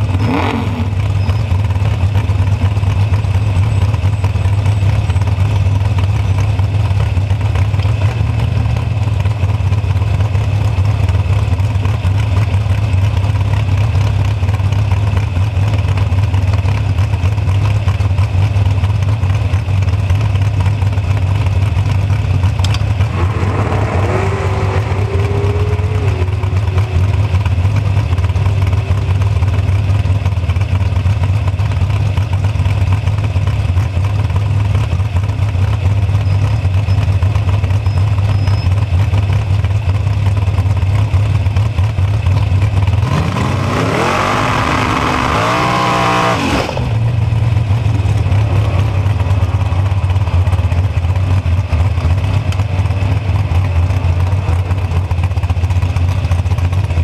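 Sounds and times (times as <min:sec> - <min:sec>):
dragster engine idling and revving: 0:00.0 - 0:57.0.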